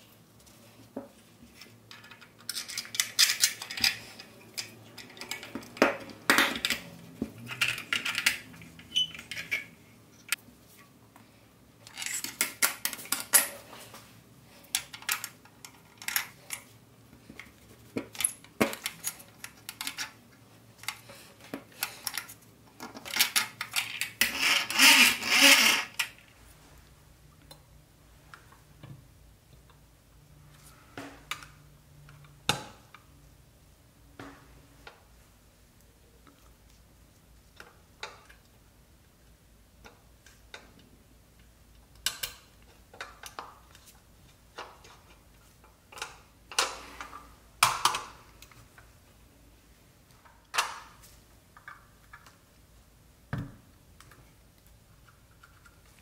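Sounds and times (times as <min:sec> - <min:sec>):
small toy parts clicking and rattling: 0:01.9 - 0:05.6.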